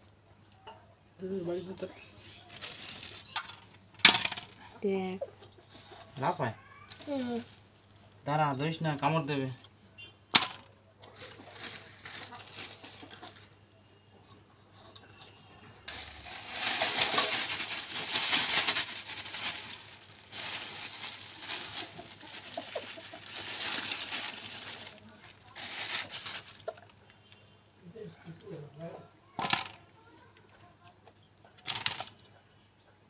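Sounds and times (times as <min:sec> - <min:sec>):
plastic bag rustling: 0:02.2 - 0:04.4, 0:10.4 - 0:13.6, 0:15.8 - 0:26.9.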